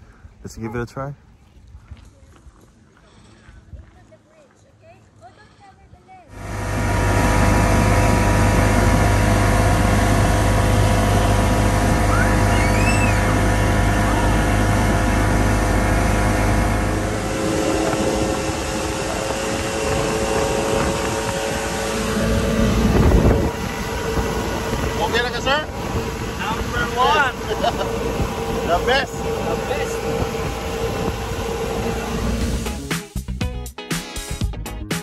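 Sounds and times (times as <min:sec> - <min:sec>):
outboard motor drone: 0:06.3 - 0:32.9
rushing water and spray: 0:06.4 - 0:32.9.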